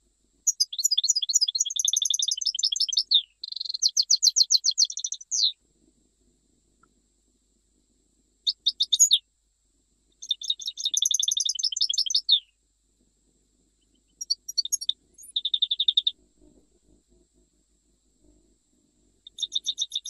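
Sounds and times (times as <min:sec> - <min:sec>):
goldfinch singing: 0:00.5 - 0:05.6, 0:08.4 - 0:09.2, 0:10.2 - 0:12.5, 0:13.8 - 0:16.1, 0:19.2 - 0:20.0.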